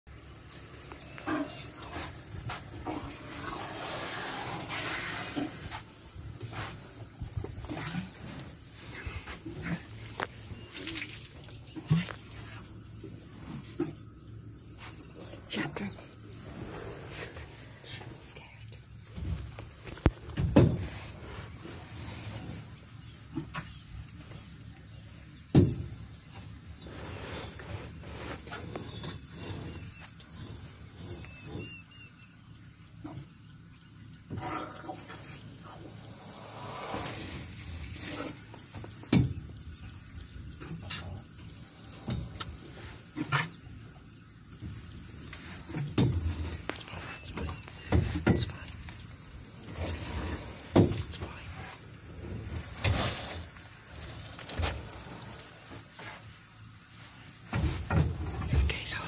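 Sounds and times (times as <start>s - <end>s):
elephant low rumbling: 0.2s - 58.5s
faint bird chirps: 17.5s - 20.4s, 43.2s - 49.9s.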